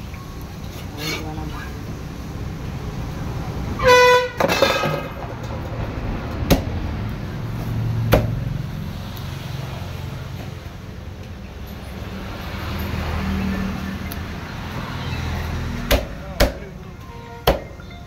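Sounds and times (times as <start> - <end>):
low traffic hum: 0.0 - 18.0
vehicle horn honking: 3.8 - 5.2
cleaver chopping on wooden block: 8.1 - 8.4, 15.9 - 16.6.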